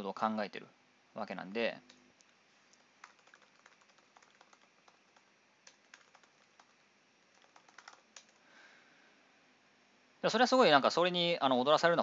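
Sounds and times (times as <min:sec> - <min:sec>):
keyboard typing: 0:02.7 - 0:08.4.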